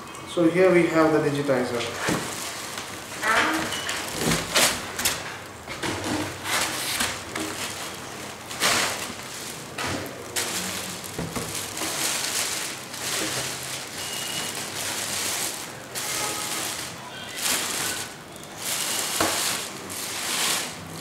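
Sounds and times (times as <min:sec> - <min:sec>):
plastic bag crinkling: 0:01.3 - 0:21.0.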